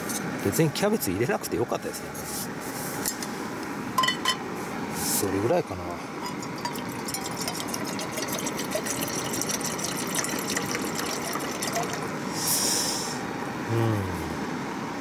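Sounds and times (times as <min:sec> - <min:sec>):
water pouring into a metal pot: 0:06.2 - 0:12.2.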